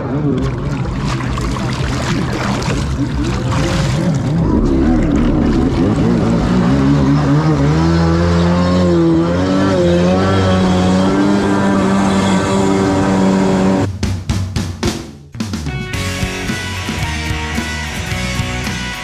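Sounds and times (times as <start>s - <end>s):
jet ski engine revving: 0.0s - 13.9s.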